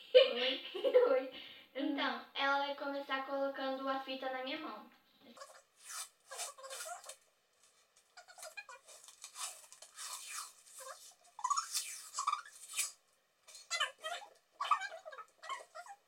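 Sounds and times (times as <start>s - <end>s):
adhesive tape pulled off roll: 5.8s - 7.8s, 8.4s - 13.7s.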